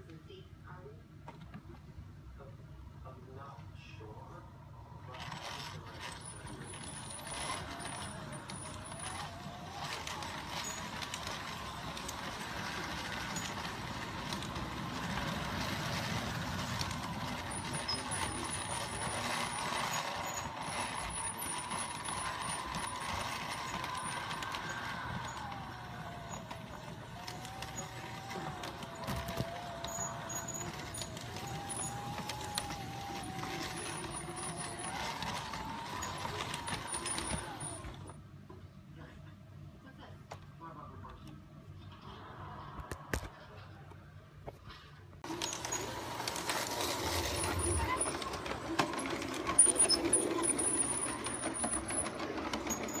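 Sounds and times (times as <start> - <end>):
wheels clicking on rails: 5.0 - 38.2, 45.2 - 53.0
electric motor whine: 6.8 - 38.0.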